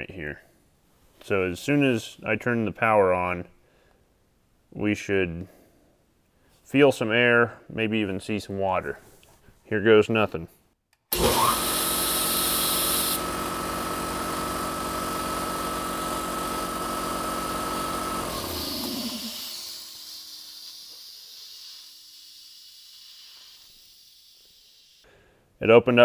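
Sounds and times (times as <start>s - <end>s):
air compressor running: 11.1s - 25.0s
hiss of compressed air blasting: 18.4s - 25.0s.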